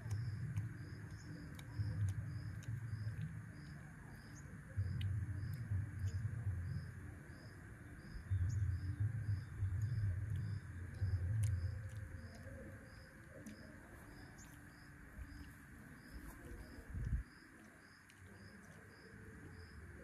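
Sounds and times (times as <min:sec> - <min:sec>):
low rumble: 0:00.0 - 0:13.0
faint birds calling: 0:00.0 - 0:20.0
insect chirping: 0:00.0 - 0:20.0.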